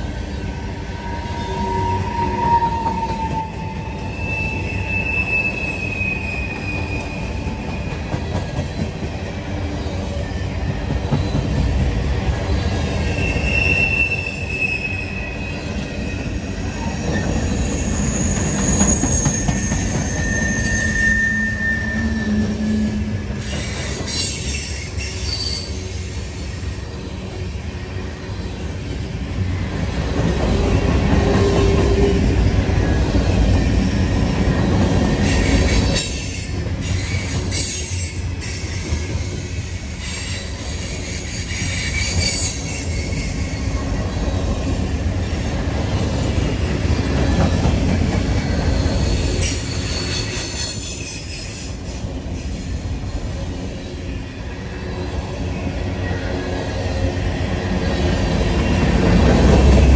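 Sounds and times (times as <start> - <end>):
train wheels rumbling on rail: 0.0 - 59.9
high-pitched wheel squeal: 1.0 - 8.0, 12.7 - 26.0.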